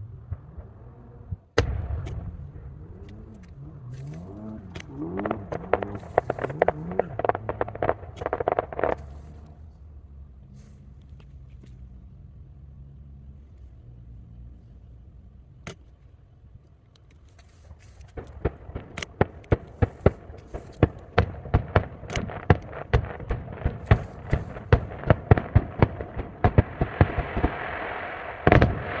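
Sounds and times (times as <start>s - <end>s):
firework shells bursting: 1.6s - 9.6s, 17.4s - 29.0s.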